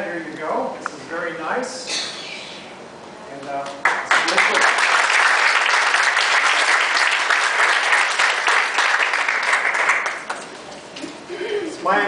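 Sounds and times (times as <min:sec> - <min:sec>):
crowd applauding: 0:03.6 - 0:10.6.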